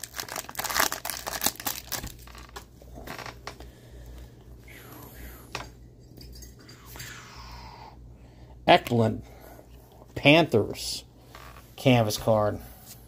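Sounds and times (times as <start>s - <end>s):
foil wrapper crinkling and tearing: 0.0s - 3.3s
cards rustling: 0.0s - 3.5s.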